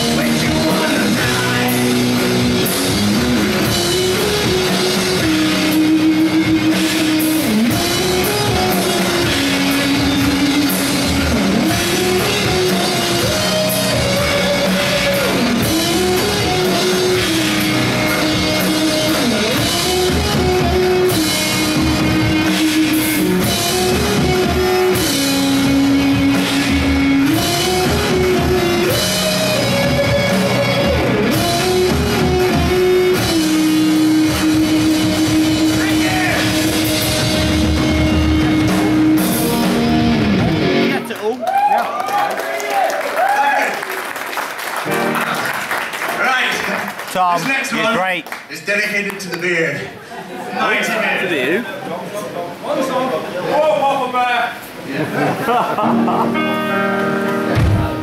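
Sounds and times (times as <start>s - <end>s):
drum kit playing: 0.0s - 41.3s, 44.4s - 46.0s, 55.6s - 58.0s
electric guitar riff: 0.0s - 41.3s, 44.8s - 45.6s, 55.8s - 58.0s.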